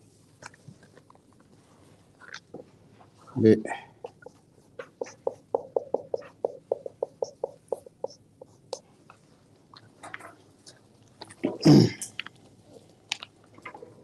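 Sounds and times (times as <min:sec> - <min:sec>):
marker squeaking on whiteboard: 0:04.1 - 0:08.8.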